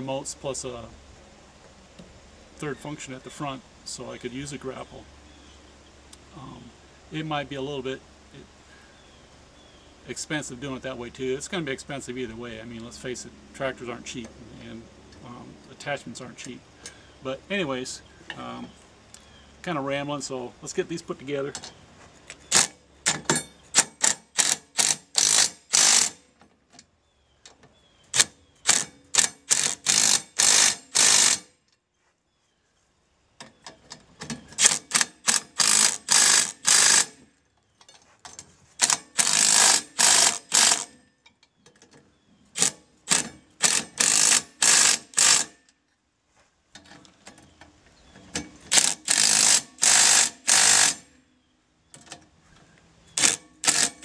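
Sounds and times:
cordless drill rattling: 0:22.4 - 0:26.2, 0:28.2 - 0:31.5, 0:34.3 - 0:37.2, 0:38.8 - 0:41.0, 0:42.6 - 0:45.5, 0:48.7 - 0:51.1, 0:53.1 - 0:54.0.

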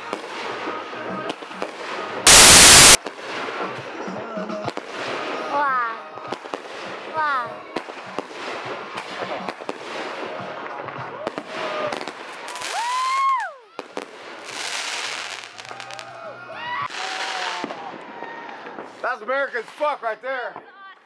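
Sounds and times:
fireworks crackling and popping: 0:00.0 - 0:04.0, 0:06.3 - 0:16.1
firework whistles: 0:02.3 - 0:03.0.

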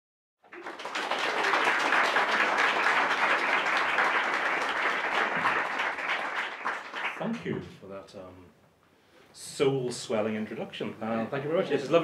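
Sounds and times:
audience applauding: 0:00.4 - 0:07.4.

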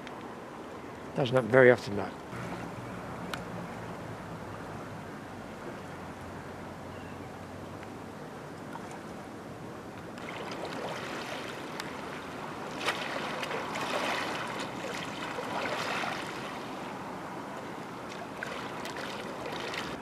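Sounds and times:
water lapping against boat hull: 0:10.1 - 0:16.9, 0:18.0 - 0:20.0.

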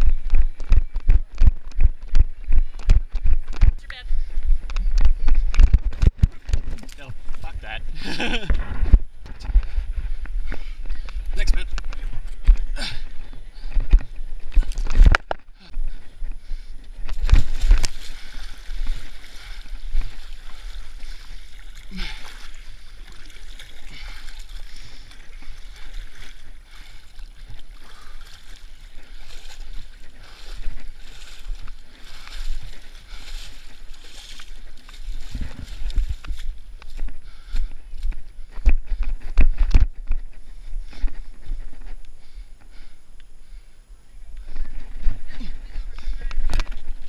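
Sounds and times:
water sloshing around legs: 0:15.9 - 0:37.5.

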